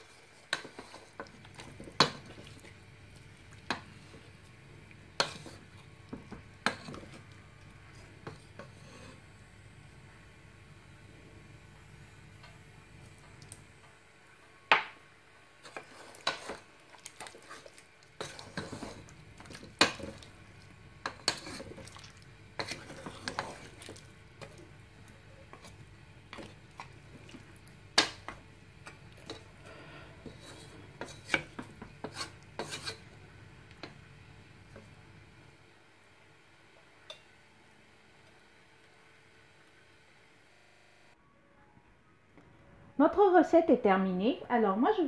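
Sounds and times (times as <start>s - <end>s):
wooden spoon scraping a metal pot: 0.5s - 2.5s, 5.2s - 7.3s, 8.0s - 9.3s, 15.6s - 20.3s, 21.0s - 21.9s, 22.6s - 24.7s, 29.2s - 33.1s.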